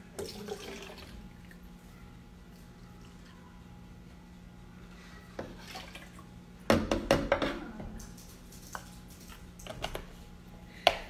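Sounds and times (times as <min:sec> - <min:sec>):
milk pouring: 0:00.1 - 0:01.7, 0:05.6 - 0:06.3.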